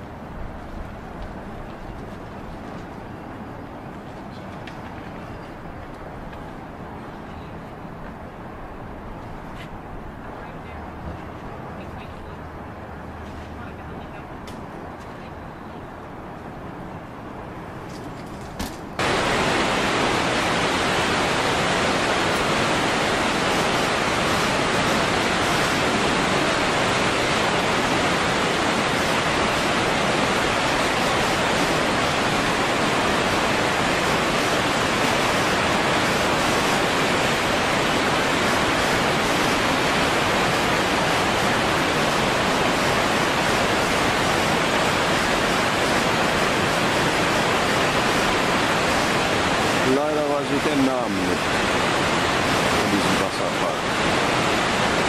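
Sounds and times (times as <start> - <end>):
waterfall rushing: 19.0 - 55.0.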